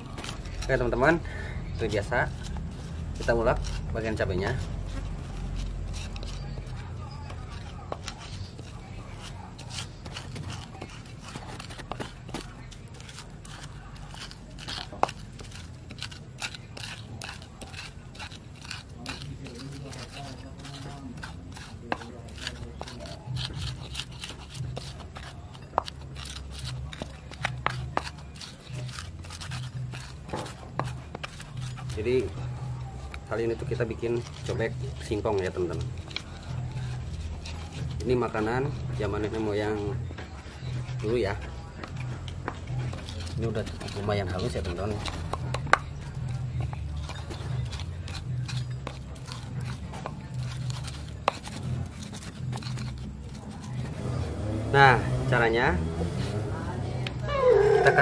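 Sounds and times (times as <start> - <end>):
pestle scraping in a mortar: 0.0 - 58.0
pestle pounding in a mortar: 1.8 - 58.0
pestle clicking against bowl: 41.4 - 53.4.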